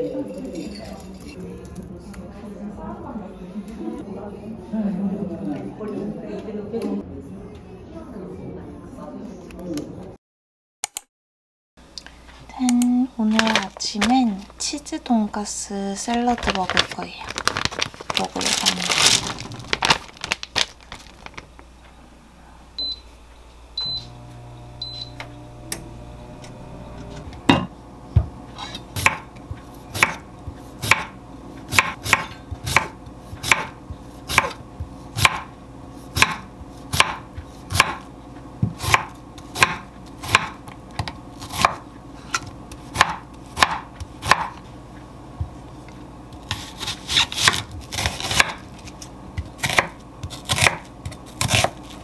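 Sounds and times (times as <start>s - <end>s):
low appliance hum: 0.0s - 10.2s, 11.8s - 52.0s
appliance beeps: 22.8s - 27.6s
knife chopping on wooden board: 27.5s - 29.3s, 29.9s - 30.2s, 30.8s - 35.5s, 36.1s - 44.6s, 46.4s - 48.6s, 49.4s - 51.8s.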